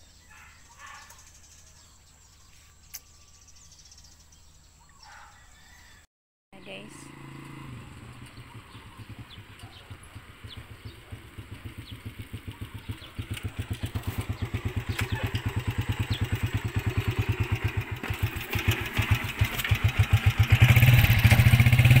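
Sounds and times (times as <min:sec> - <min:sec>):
motorcycle engine running: 0:06.6 - 0:22.0.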